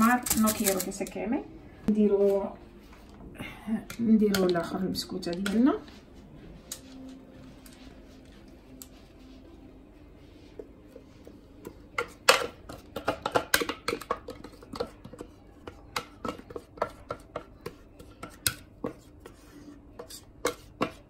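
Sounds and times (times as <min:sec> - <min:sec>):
spatula scraping steel bowl: 0:16.3 - 0:21.0.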